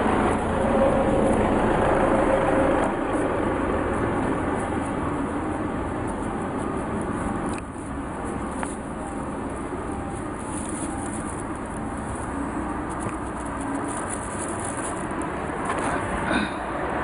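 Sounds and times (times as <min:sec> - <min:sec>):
road traffic hum: 0:00.0 - 0:17.0.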